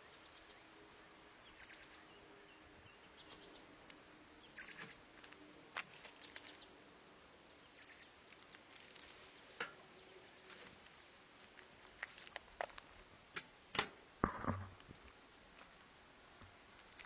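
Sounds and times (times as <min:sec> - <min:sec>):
handling clicks and rubs: 0:10.4 - 0:13.9.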